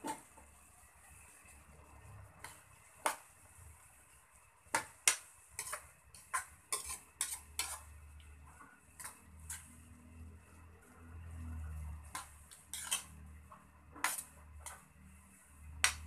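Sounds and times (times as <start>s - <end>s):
metal ladle scraping a wok: 5.5s - 8.0s, 9.0s - 10.2s, 11.4s - 13.4s, 14.0s - 14.8s.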